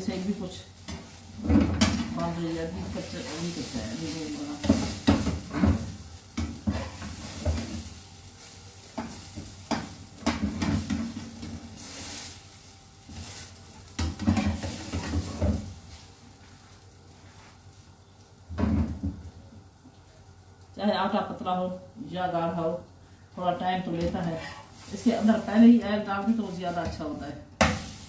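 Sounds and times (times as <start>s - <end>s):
faint sizzle of frying: 0.0s - 28.0s
spatula scraping frying pan: 0.1s - 7.9s, 24.2s - 25.6s.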